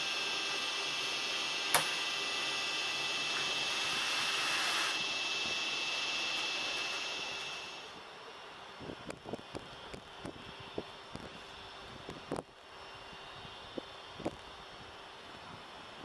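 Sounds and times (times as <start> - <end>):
locomotive hissing whine: 0.0 - 16.0
air hiss burst: 1.0 - 7.9
sharp click: 1.7 - 2.0.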